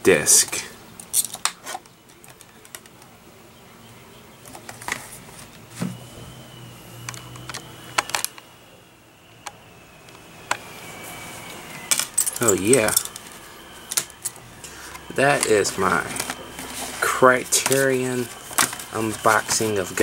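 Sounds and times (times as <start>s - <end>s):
sharp plastic clicks: 7.0s - 8.5s.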